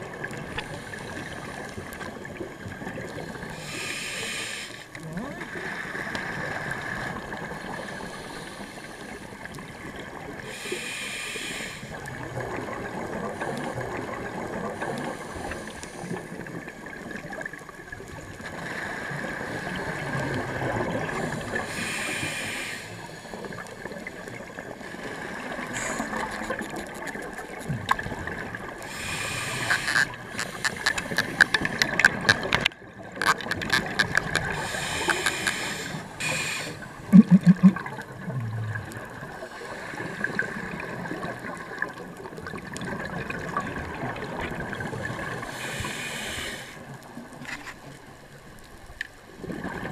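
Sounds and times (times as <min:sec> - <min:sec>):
muffled underwater water wash: 0:00.0 - 0:49.9
regulator bubbles hissing: 0:19.3 - 0:47.0.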